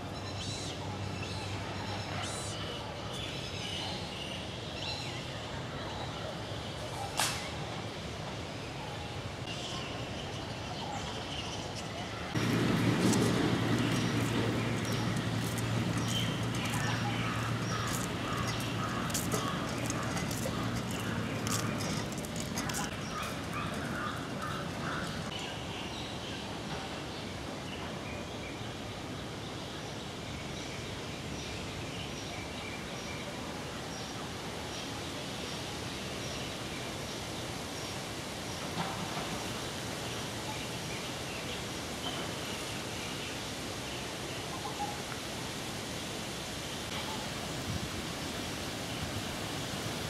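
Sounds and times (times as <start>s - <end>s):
steady hiss: 11.4s - 25.4s
faint bird calls: 13.5s - 25.3s.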